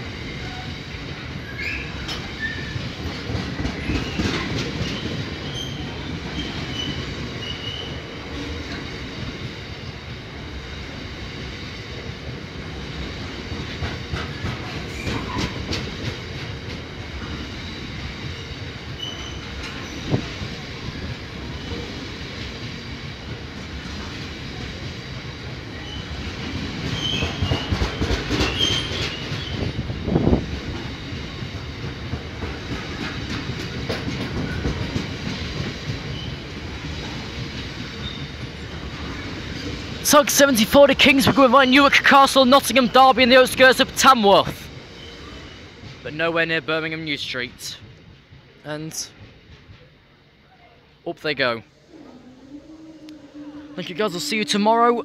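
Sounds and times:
freight train wheels clattering: 0.2 - 44.0, 47.7 - 50.1
high wheel squeals: 18.4 - 20.2, 38.0 - 38.5, 51.8 - 55.0.

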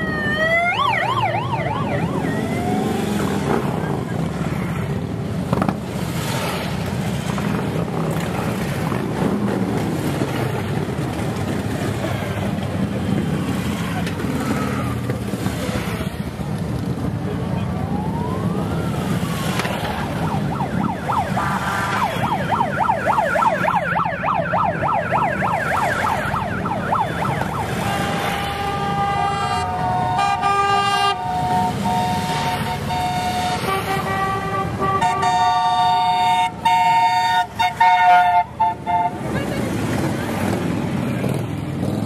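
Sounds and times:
siren warbling: 0.0 - 4.3
motorcycle engines rumbling: 0.0 - 42.0
horns tooting: 27.6 - 40.6.

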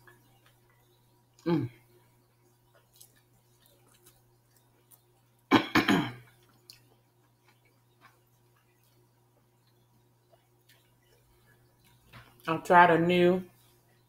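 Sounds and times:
person chewing: 2.3 - 5.5, 6.2 - 12.5.

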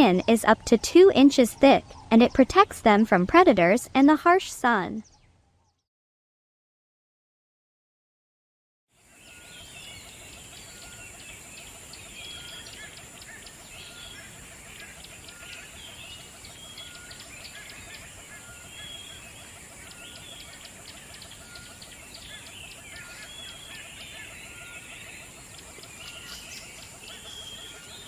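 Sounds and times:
birds chirping and whistling: 9.1 - 28.0.

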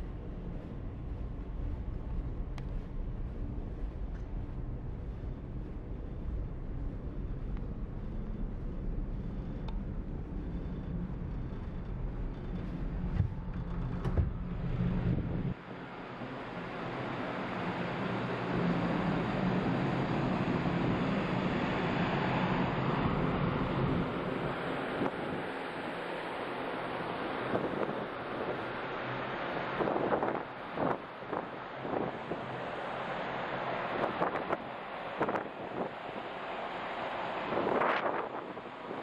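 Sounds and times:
low hum of ship engines: 0.0 - 39.0
rushing wind: 0.0 - 39.0
sea noise: 15.6 - 39.0
wind on microphone: 27.2 - 28.8, 29.6 - 32.8, 33.8 - 39.0.

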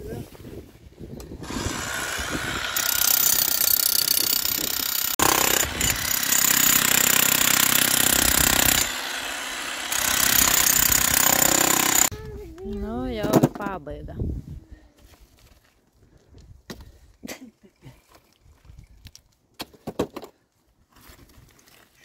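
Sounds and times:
demolition hammer chiselling concrete: 1.4 - 12.1.

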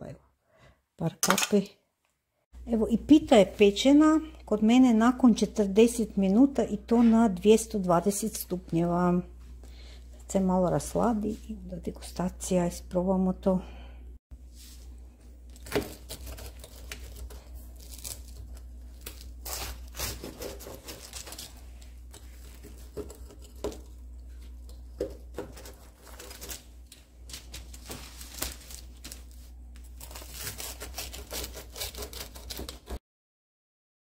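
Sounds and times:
baking paper crinkling: 15.4 - 33.0
pastry crust crunching: 15.4 - 33.0.

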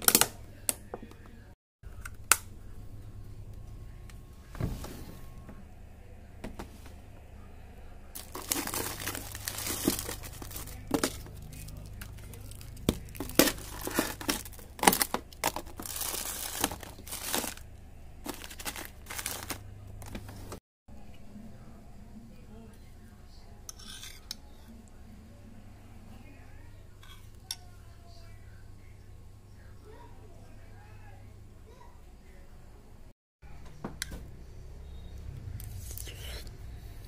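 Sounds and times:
plastic bags crinkling: 8.2 - 20.6.

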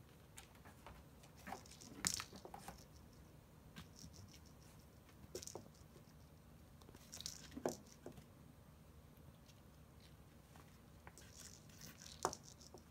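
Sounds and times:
kitten pouncing on a toy: 5.3 - 5.9, 11.1 - 12.9.

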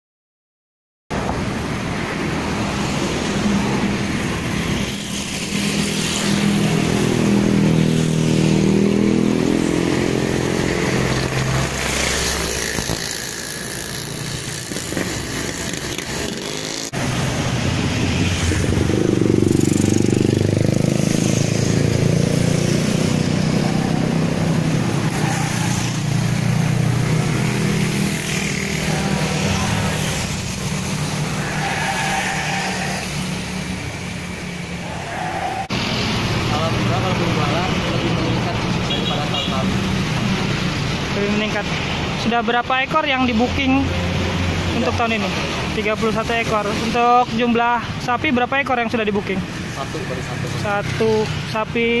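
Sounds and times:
vehicle engine noise: 1.1 - 52.0.

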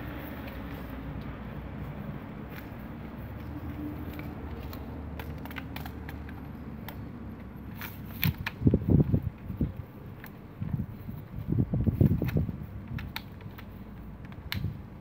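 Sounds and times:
steady low rumble: 8.5 - 12.9
plastic and metal clicks: 11.8 - 15.0.

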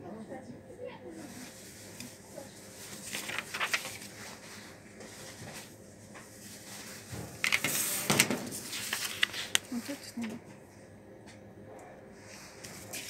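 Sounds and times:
paper crinkling and rustling: 1.2 - 10.4, 12.2 - 13.0.

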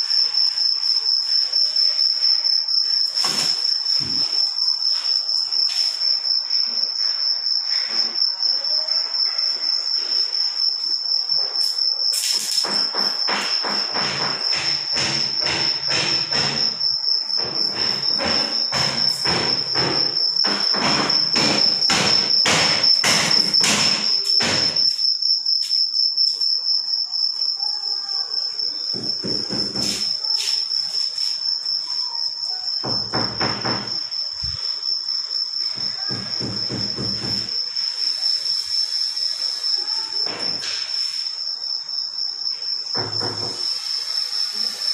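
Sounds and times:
cricket trilling: 0.0 - 44.9
knocks and clatter: 17.4 - 24.9.

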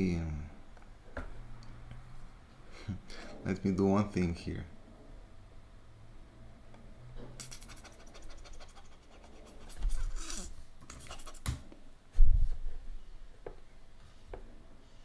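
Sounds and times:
scratchy desk noises: 7.4 - 11.7.

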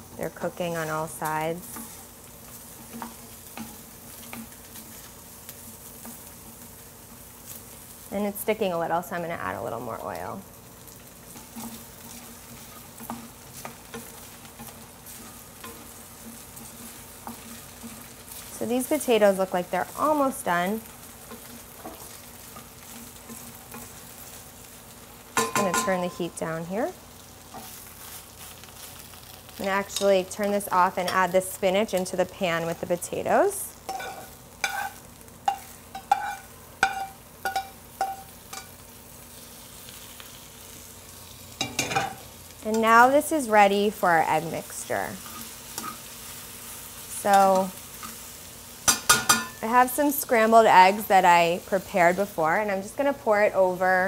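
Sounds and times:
potatoes sizzling in oil: 0.0 - 54.0
metal tongs clanking on pans: 11.3 - 24.0, 25.3 - 26.4, 29.6 - 33.0, 33.9 - 38.8, 41.6 - 43.2, 45.2 - 46.1, 47.2 - 48.2, 48.8 - 50.0
wooden spoon scraping pan: 33.9 - 37.1.

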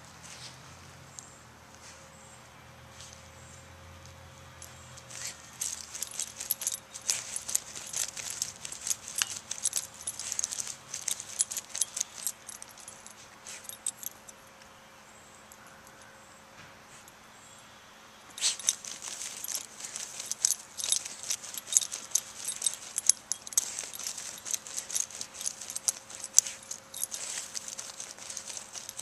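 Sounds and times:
puppy scratching in soil: 5.0 - 14.1, 18.4 - 29.0.

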